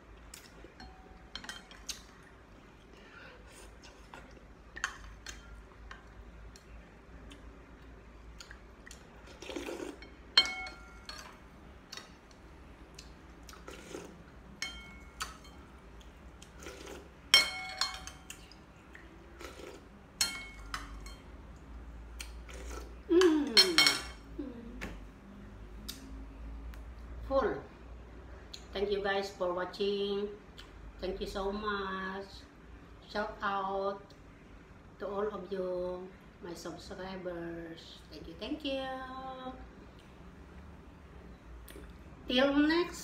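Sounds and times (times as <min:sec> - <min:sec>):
slurping and chewing: 0:07.2 - 0:10.0, 0:12.9 - 0:14.2, 0:16.0 - 0:17.2, 0:18.4 - 0:19.9, 0:22.2 - 0:23.0
utensils clinking on ceramic bowl: 0:10.0 - 0:11.4, 0:14.6 - 0:15.6, 0:17.3 - 0:18.4, 0:20.2 - 0:21.3, 0:23.6 - 0:24.2.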